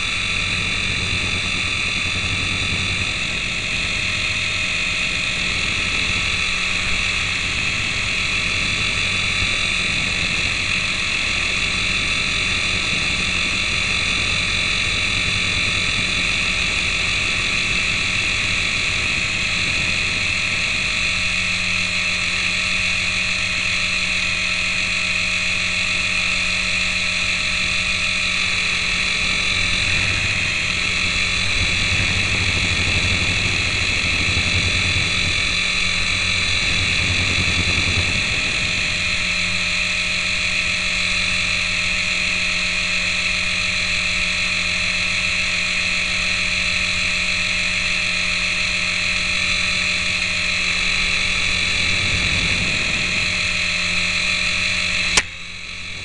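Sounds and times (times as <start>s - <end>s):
small helicopter rotors whining: 0.0s - 56.0s
deeper rumble: 28.6s - 39.3s.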